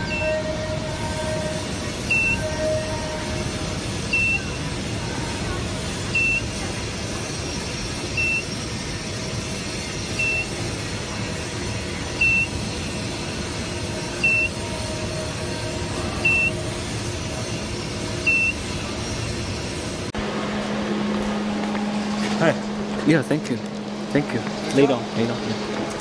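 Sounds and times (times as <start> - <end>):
equipment humming: 9.8 - 26.0
short high electronic beeps: 20.2 - 26.0.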